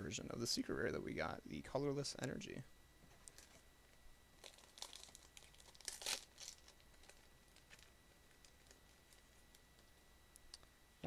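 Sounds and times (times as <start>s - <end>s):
plastic wrapper being ripped open: 4.4s - 9.2s.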